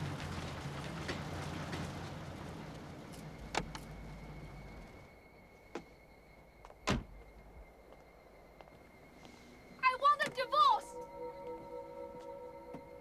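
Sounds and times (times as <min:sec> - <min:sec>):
car engine idling: 0:00.0 - 0:05.1.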